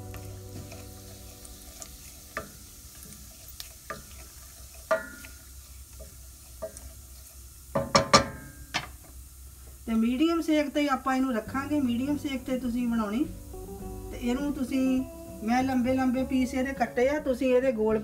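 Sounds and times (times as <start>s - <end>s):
seeds sizzling in oil: 0.0s - 18.0s
wooden spatula knocking pot: 7.7s - 8.9s.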